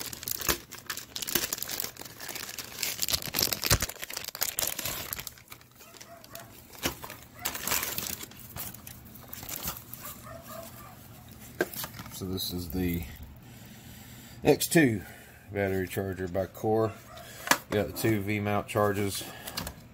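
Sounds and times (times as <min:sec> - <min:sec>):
plastic bag crinkling: 0:00.0 - 0:13.2.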